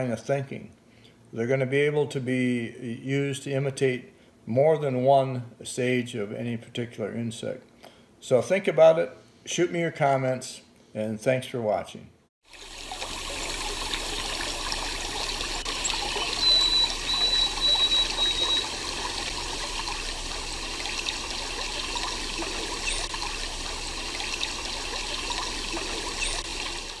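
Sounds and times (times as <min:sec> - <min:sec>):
water trickling: 0:12.4 - 0:27.0
short rising chirps: 0:15.8 - 0:19.2
thin high whistle: 0:16.2 - 0:18.7.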